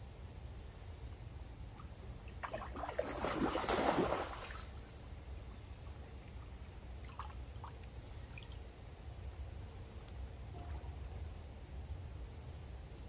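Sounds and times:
fish thrashing and splashing water: 0:02.4 - 0:04.7.

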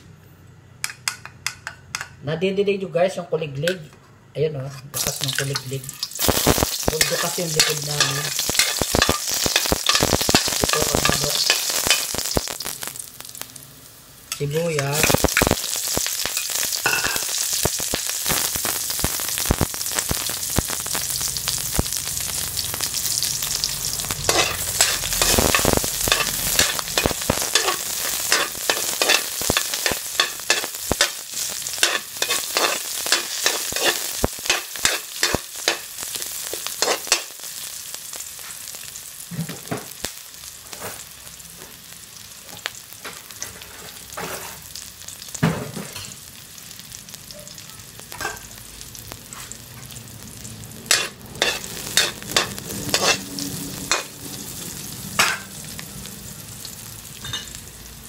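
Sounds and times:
onions sizzling in hot oil: 0:04.9 - 0:58.0
metal ladle scraping a wok: 0:06.9 - 0:12.1, 0:23.9 - 0:35.8, 0:36.5 - 0:37.3, 0:50.9 - 0:54.1.

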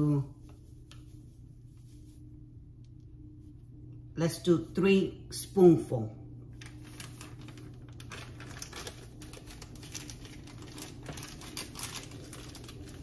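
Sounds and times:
plastic bag crinkling: 0:06.5 - 0:13.0.

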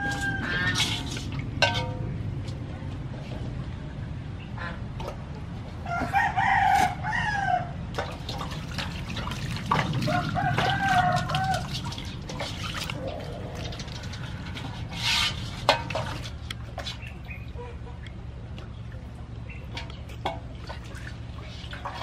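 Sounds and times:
rooster crowing: 0:00.0 - 0:01.0, 0:05.8 - 0:07.8, 0:10.1 - 0:11.7
water splashing in metal basin: 0:00.0 - 0:02.3, 0:07.9 - 0:17.7, 0:18.6 - 0:22.0.

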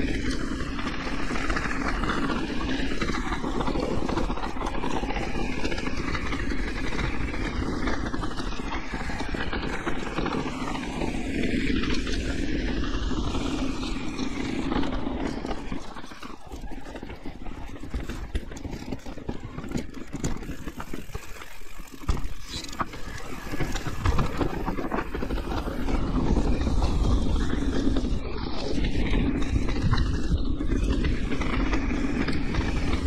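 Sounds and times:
wind and tyre noise: 0:00.0 - 0:33.0
bike knocks and rattles: 0:16.2 - 0:26.0.

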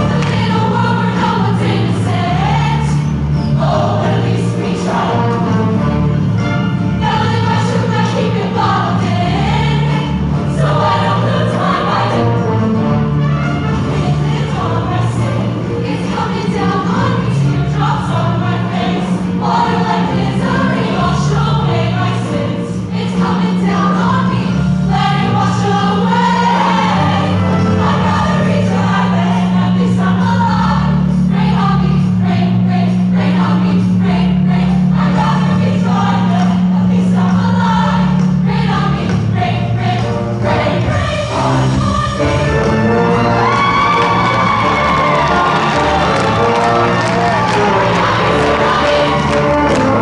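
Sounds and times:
women's choir singing: 0:00.0 - 0:06.2, 0:06.8 - 0:13.1, 0:13.7 - 0:50.0
band accompaniment: 0:03.6 - 0:18.3, 0:38.8 - 0:50.0.

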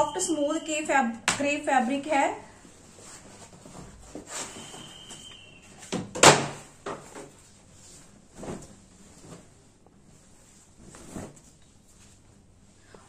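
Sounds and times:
cloth rustling: 0:01.8 - 0:05.3, 0:07.0 - 0:12.9
fabric flapping: 0:07.1 - 0:12.6
fabric swishing: 0:07.4 - 0:12.8.

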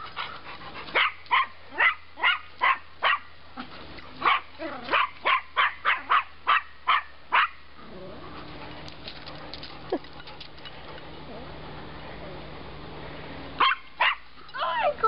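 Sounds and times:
dog barking sharply: 0:04.2 - 0:07.6, 0:13.6 - 0:14.2.

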